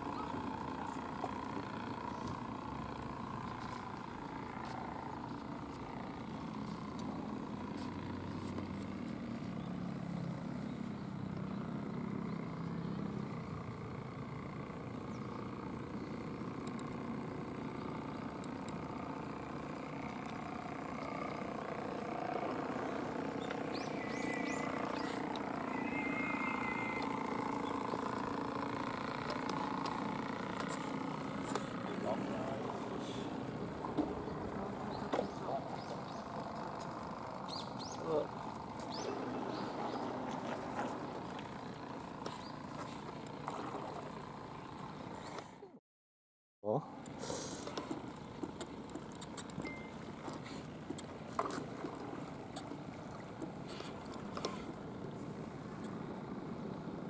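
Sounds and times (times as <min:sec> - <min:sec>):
distant model steam engine running: 0:00.0 - 0:08.3, 0:11.2 - 0:42.8
outdoor background noise: 0:00.0 - 0:45.8, 0:46.6 - 0:57.0
short high chirps: 0:23.8 - 0:27.8.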